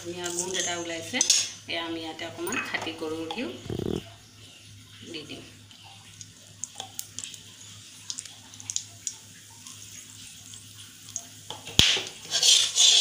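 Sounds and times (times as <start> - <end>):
oil crackles and pops: 3.6 - 4.1, 5.9 - 12.3
spices sizzling in hot oil: 6.2 - 13.0.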